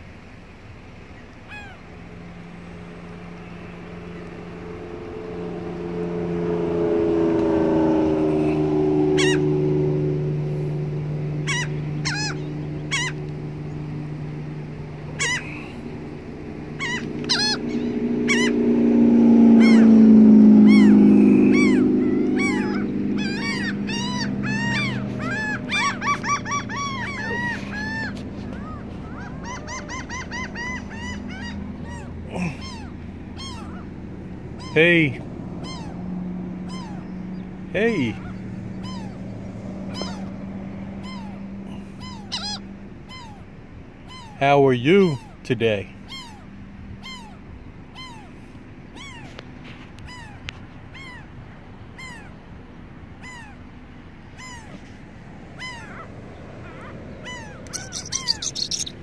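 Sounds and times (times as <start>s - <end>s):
gulls calling: 0.0s - 59.0s
low drone sliding down in pitch: 1.7s - 43.0s.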